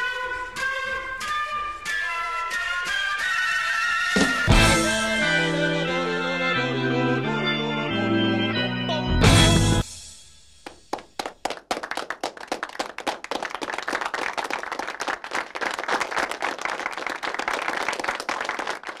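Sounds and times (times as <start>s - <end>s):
audience applauding: 10.6s - 19.0s.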